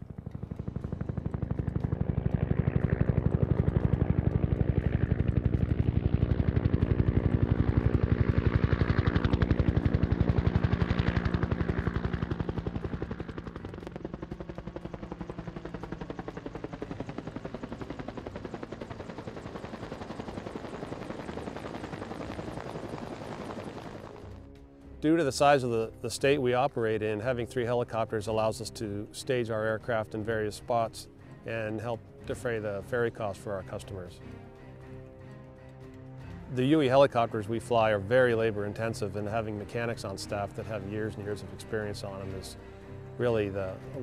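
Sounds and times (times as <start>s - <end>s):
helicopter rotor blade slap: 0.0s - 24.2s
turbine drone: 0.0s - 44.0s.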